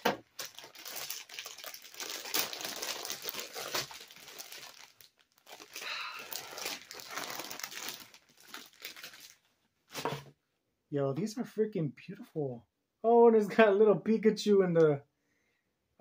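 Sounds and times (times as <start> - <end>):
plastic bag crinkling and tearing: 0.0 - 10.1.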